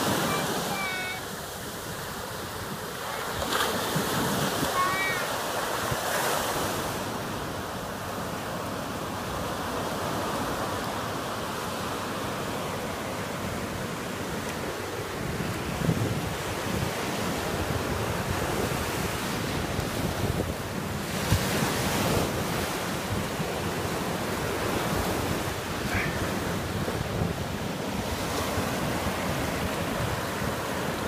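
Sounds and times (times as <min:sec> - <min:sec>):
small surf washing on sand: 0:00.0 - 0:31.0
wind buffeting microphone: 0:14.6 - 0:31.0.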